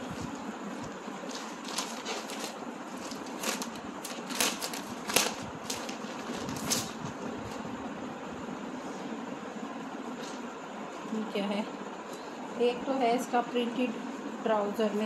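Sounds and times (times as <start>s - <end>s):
steady low hum: 0.0s - 15.0s
plastic packet crinkling: 1.2s - 7.0s.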